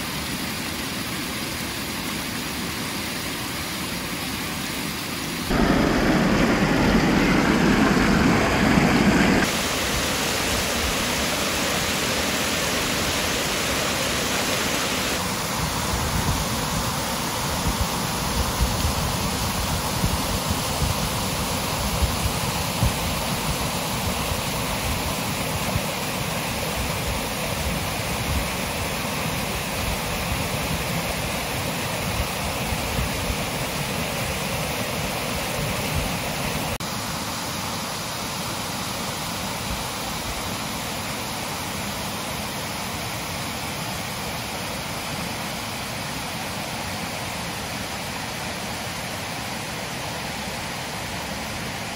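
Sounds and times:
stream rushing: 0.0 - 51.9
low rumble: 5.5 - 9.5.

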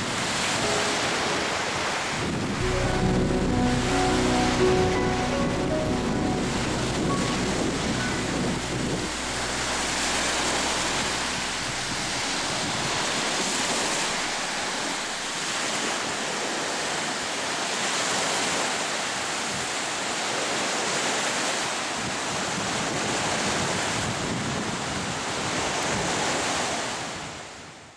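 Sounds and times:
sea waves washing onto beach: 0.0 - 27.6
background song: 0.5 - 15.8.

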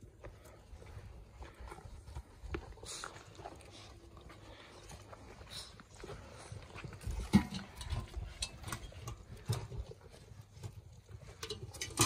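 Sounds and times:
puppy feet clicking on steel pans: 7.0 - 12.0.

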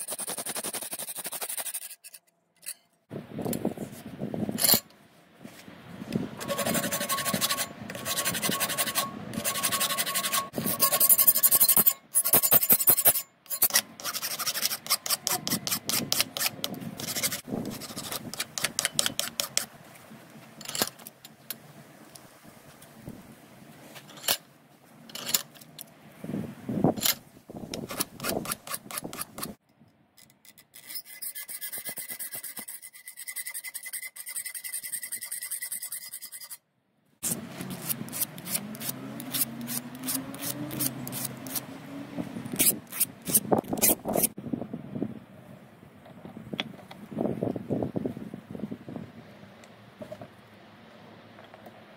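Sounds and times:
hand file rasping on metal: 0.0 - 2.8, 6.4 - 19.7, 27.9 - 29.5, 30.8 - 36.6, 37.2 - 41.7
hacksaw cutting metal: 0.0 - 2.9, 6.4 - 19.7, 27.8 - 29.6, 30.4 - 36.6, 37.2 - 41.7, 42.6 - 44.4.

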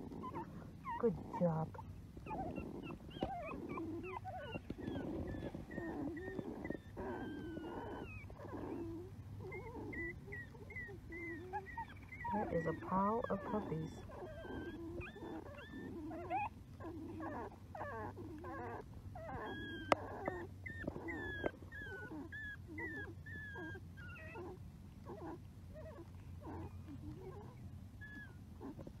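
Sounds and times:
puppies grunting: 0.0 - 29.0
puppies squeaking and whimpering: 0.0 - 29.0.

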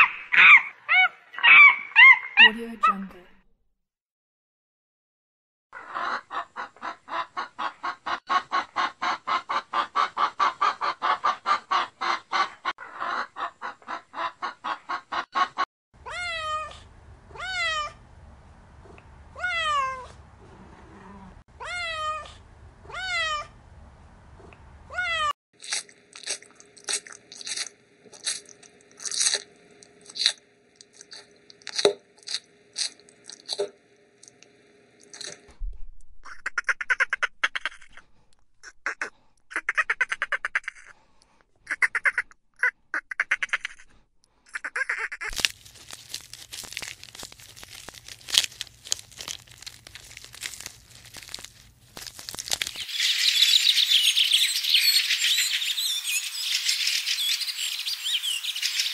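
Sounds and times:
hens clucking: 5.8 - 15.6
cat meowing: 16.0 - 18.0, 19.4 - 20.1, 20.8 - 23.5, 24.9 - 25.3.

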